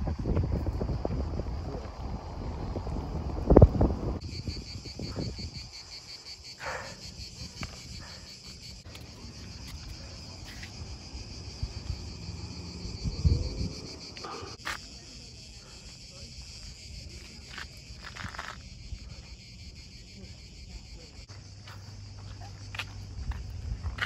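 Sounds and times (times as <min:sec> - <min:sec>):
wind rumble on microphone: 0:00.0 - 0:05.9, 0:10.7 - 0:14.2, 0:22.8 - 0:24.0
cicadas shrilling: 0:00.0 - 0:24.0.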